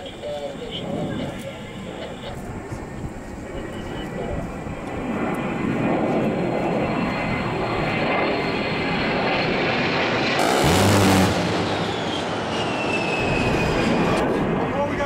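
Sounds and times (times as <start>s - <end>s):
jet engines whining: 0.0s - 15.0s
rotary cannon burst: 10.4s - 12.4s.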